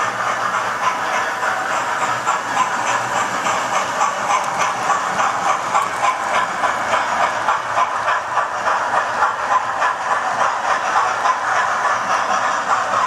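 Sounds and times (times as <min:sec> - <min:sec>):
model trains whirring and rattling: 0:00.0 - 0:13.0.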